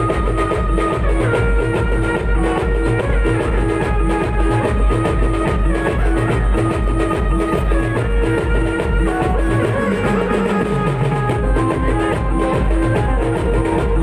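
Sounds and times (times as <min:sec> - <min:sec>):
heavy drum beat: 0:00.0 - 0:14.0
keyboard playing a melody: 0:00.0 - 0:14.0.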